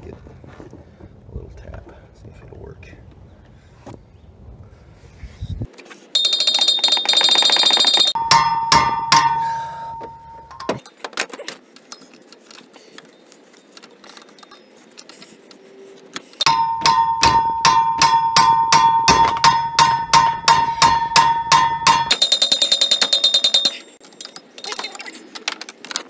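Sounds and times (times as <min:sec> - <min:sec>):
ringing metallic tone: 0:06.2 - 0:10.8, 0:16.4 - 0:24.7
sledgehammer striking metal wrench: 0:06.2 - 0:10.8, 0:16.4 - 0:24.0.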